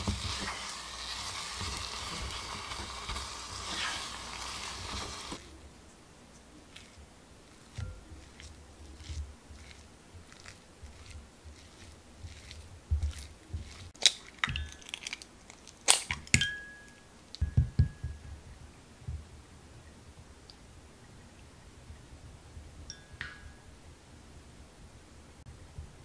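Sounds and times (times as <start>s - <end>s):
spatula scraping in glass bowl: 0.1s - 5.4s, 6.7s - 13.9s
stirring in ceramic bowl: 6.6s - 15.2s
ringing clinks: 16.4s - 18.2s.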